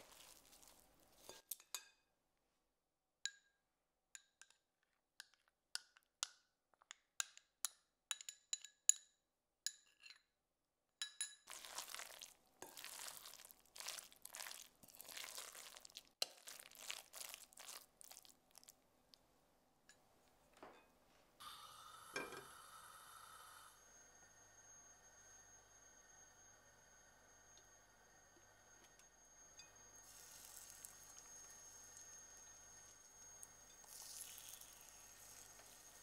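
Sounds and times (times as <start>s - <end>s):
metal spoon clinking on glass bowl: 11.0s - 11.6s
stirring batter in glass bowl: 11.5s - 18.7s.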